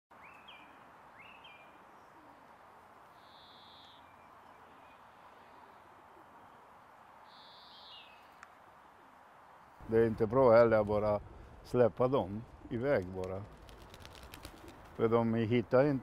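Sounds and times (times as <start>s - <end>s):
birds chirping: 0.1s - 2.4s, 3.1s - 8.5s
pigeons cooing: 2.0s - 2.5s, 13.5s - 15.0s.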